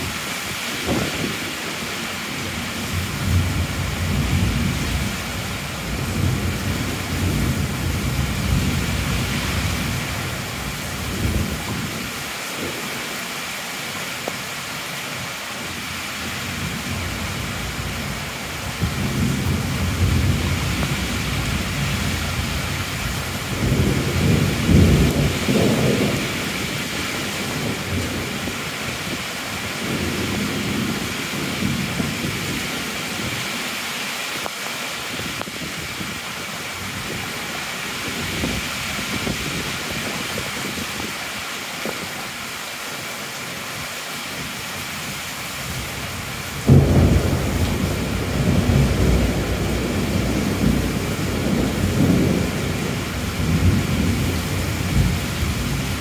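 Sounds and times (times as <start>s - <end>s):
heavy rain falling: 0.0s - 56.0s
thunder rumbling: 16.5s - 33.4s, 46.5s - 56.0s.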